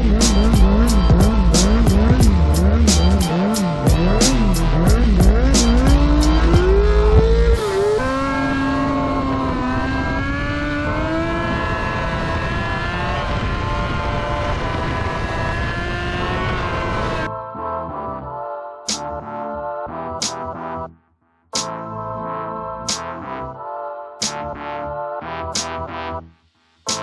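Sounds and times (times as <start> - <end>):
music with thumping bass: 0.0 - 8.0, 18.9 - 21.0, 21.6 - 23.5, 24.2 - 27.0
motorcycle engine revving: 0.0 - 17.3.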